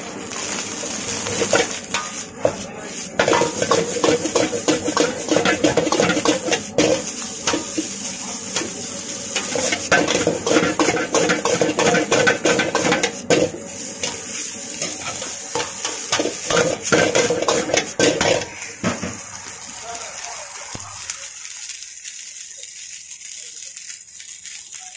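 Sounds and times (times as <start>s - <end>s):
frying hiss: 0.0s - 24.9s
ladle scraping and clanking on wok: 1.2s - 19.2s.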